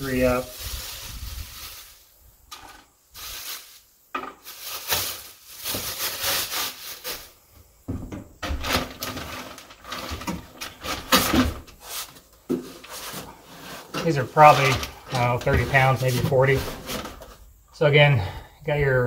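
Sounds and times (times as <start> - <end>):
packaging rustling: 0.3 - 3.8, 4.4 - 7.4, 8.4 - 17.4
scrape: 4.5 - 7.3, 10.8 - 17.4.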